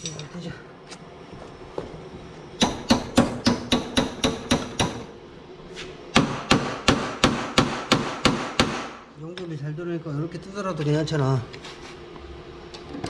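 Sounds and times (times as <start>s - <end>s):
hammer tapping on metal: 2.6s - 5.1s.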